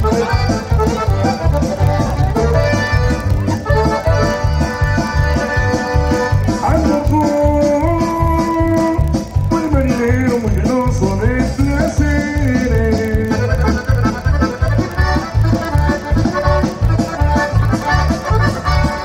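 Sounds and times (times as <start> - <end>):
accordion melody: 0.0 - 19.0
steady bass beat: 0.0 - 19.0.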